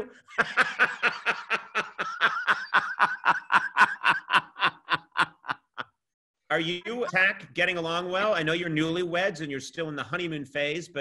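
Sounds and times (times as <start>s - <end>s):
man laughing: 0.1s - 6.0s.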